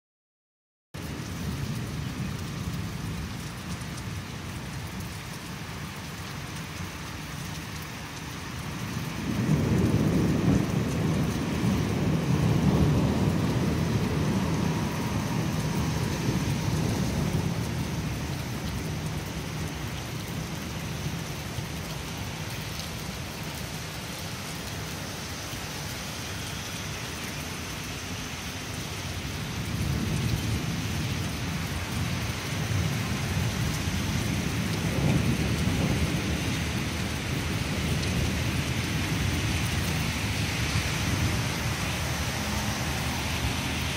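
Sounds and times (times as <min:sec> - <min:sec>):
steady rain: 0:01.0 - 0:43.9
rolling thunder: 0:09.0 - 0:19.6, 0:29.4 - 0:43.9.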